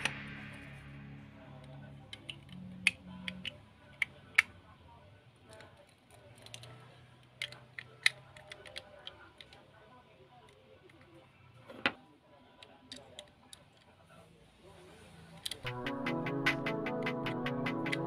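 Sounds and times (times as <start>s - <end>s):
faint background music: 0.0s - 18.0s
toy car parts clicking: 2.1s - 4.5s, 5.5s - 9.6s, 12.6s - 13.9s, 15.4s - 15.7s.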